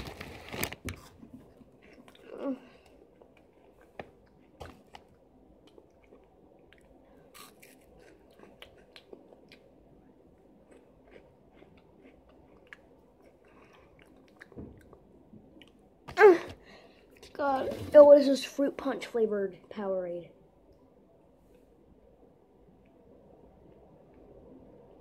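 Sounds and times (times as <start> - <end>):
chewing crunchy snacks: 0.0 - 15.8.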